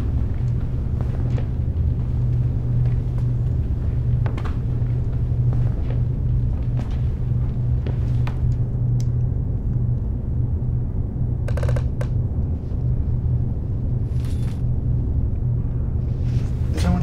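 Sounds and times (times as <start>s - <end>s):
low droning rumble: 0.0s - 17.0s
rattling creak: 11.5s - 12.1s.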